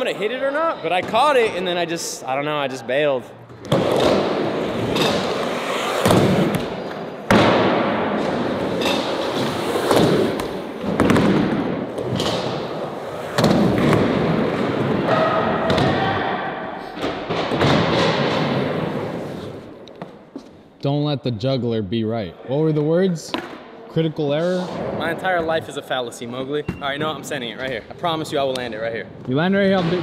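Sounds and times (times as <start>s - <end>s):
skateboards thudding and clacking: 3.6s - 16.1s, 17.0s - 20.2s
skateboard wheels rolling: 3.7s - 15.8s, 17.5s - 19.8s.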